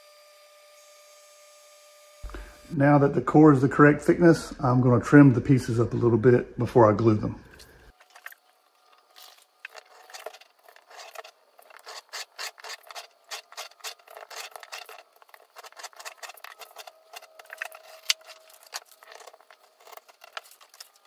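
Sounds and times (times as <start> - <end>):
knife slicing wood veneer: 10.0 - 21.0.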